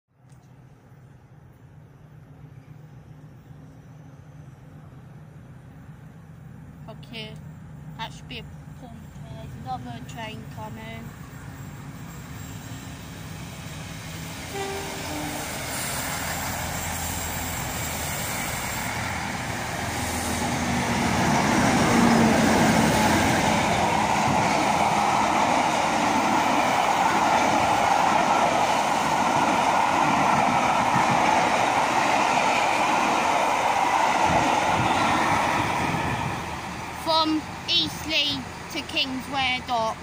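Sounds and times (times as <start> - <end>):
diesel locomotive engines humming: 0.4 - 40.0.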